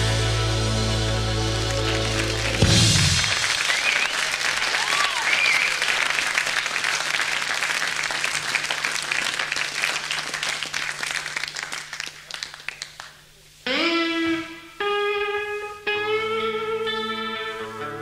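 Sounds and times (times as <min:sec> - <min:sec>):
low recording hum: 0:00.0 - 0:18.0
audience applauding: 0:01.4 - 0:13.3
short whistle: 0:03.6 - 0:04.3.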